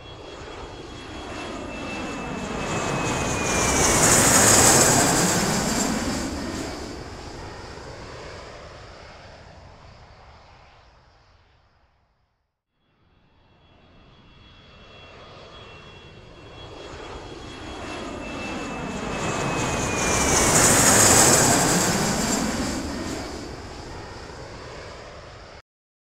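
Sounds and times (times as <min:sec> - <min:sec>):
jet aircraft flying over: 0:00.0 - 0:12.0, 0:12.9 - 0:25.6
falling whine: 0:13.7 - 0:24.3.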